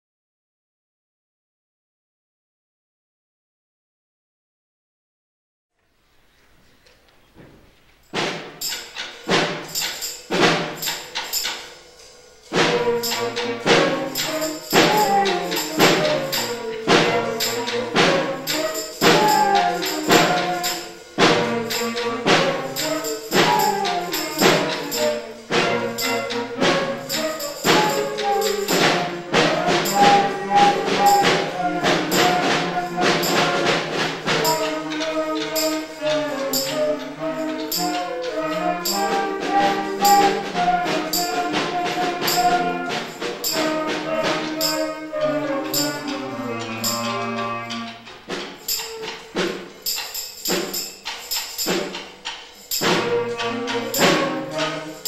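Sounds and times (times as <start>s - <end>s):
percussion beat: 8.0s - 55.0s
tambourine jingles: 8.0s - 55.0s
flutes and clarinets: 8.3s - 49.7s, 50.5s - 55.0s.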